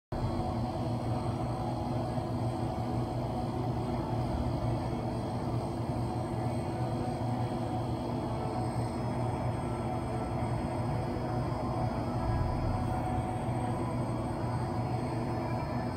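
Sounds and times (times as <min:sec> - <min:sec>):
indoor pool hall rumble: 0:00.2 - 0:15.9.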